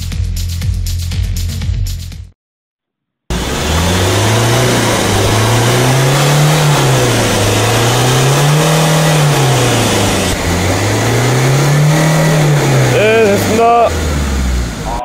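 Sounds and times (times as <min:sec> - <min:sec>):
car engine revving: 0:03.3 - 0:15.0.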